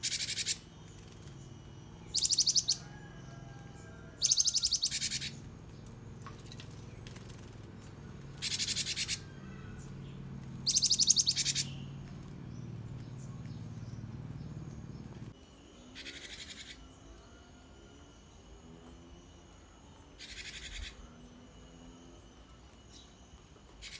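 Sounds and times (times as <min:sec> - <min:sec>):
bird trilling: 0:00.0 - 0:00.7, 0:02.0 - 0:05.5, 0:08.2 - 0:12.1
low hum: 0:00.0 - 0:23.9.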